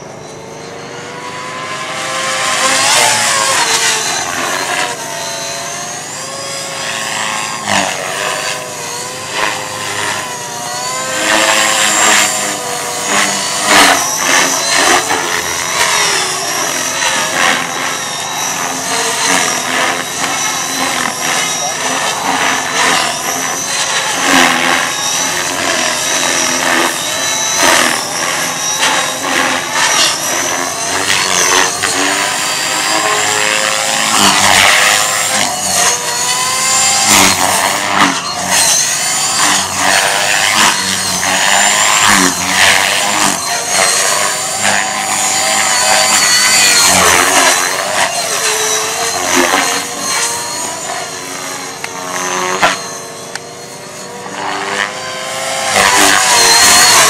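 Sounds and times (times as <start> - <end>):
rc helicopter motor whine: 0.0 - 57.0
rotor blade whooshes: 1.2 - 57.0.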